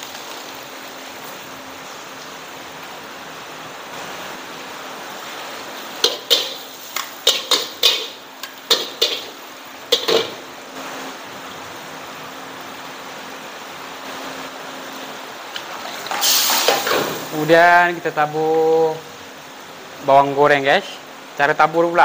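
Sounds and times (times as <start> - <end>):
steady background hiss: 0.0 - 22.0
metal utensils clinking on cookware: 6.0 - 10.4.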